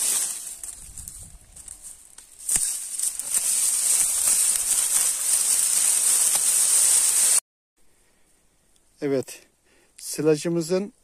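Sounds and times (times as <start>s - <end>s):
stalk snapping: 0.0s - 7.0s
dry corn stalks rustling: 0.0s - 7.4s.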